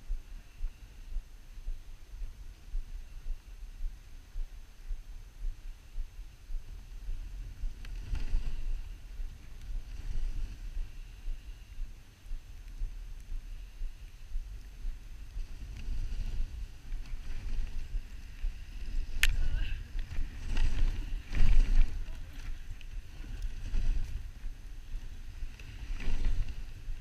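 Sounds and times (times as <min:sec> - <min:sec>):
sled runners on snow: 0:00.0 - 0:27.0
wind buffeting microphone: 0:00.0 - 0:27.0.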